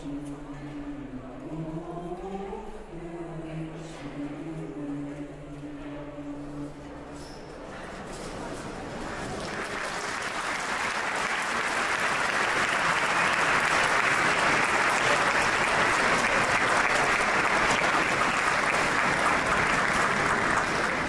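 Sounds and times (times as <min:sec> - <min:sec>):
crowd applauding: 0:09.0 - 0:21.0.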